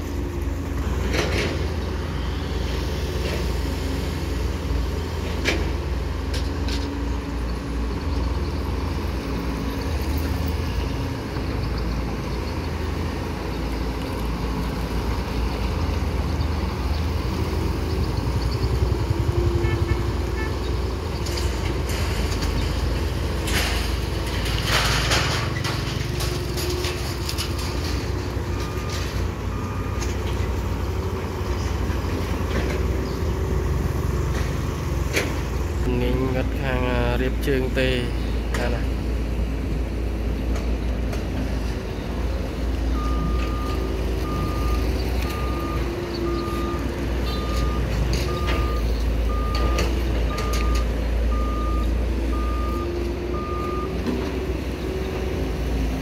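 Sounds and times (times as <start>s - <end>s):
excavator diesel engines running: 0.0s - 56.0s.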